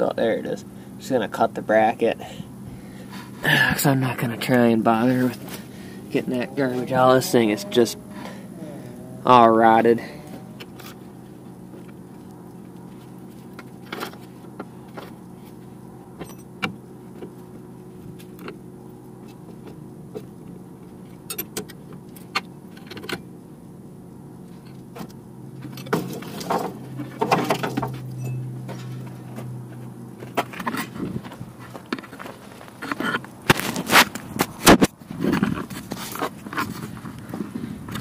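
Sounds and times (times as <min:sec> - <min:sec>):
steady low hum: 0:00.0 - 0:38.0
hand tools clinking on metal: 0:25.7 - 0:29.2.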